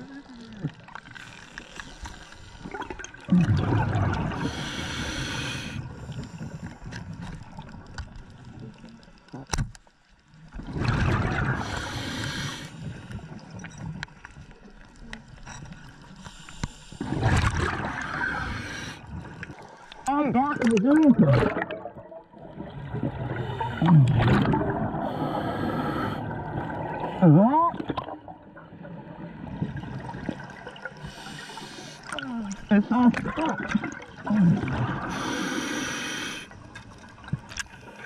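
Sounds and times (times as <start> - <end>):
low watery background: 0.0 - 38.0
diver exhaling bubbles: 2.6 - 5.8, 10.6 - 12.6, 17.0 - 19.4, 21.1 - 28.3, 33.2 - 36.4.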